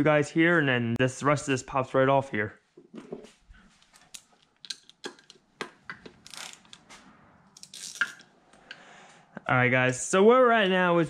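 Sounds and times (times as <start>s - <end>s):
metal parts and tools clinking: 3.9s - 6.9s, 7.5s - 8.3s.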